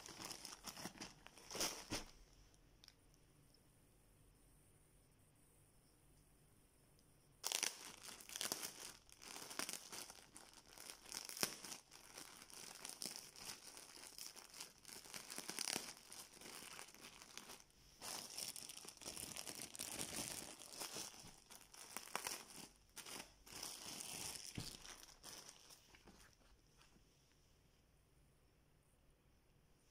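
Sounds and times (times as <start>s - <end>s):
plastic packaging crinkling: 0.0s - 2.2s, 7.4s - 26.9s.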